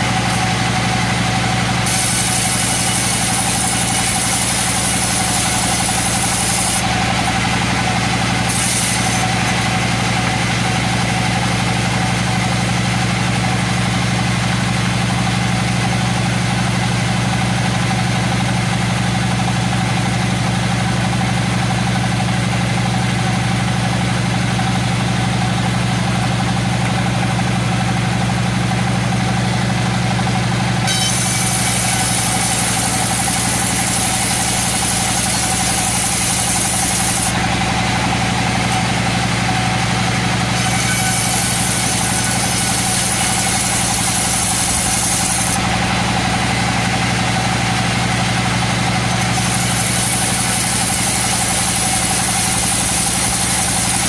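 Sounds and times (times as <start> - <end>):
saw blade hissing through wood: 0.0 - 9.7, 30.9 - 37.4, 40.5 - 45.6, 49.2 - 54.0
band saw humming: 0.0 - 13.6, 30.0 - 54.0.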